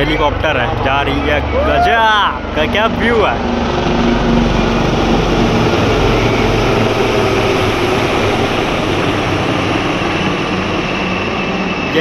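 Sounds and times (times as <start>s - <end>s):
helicopter flying past: 0.0s - 12.0s.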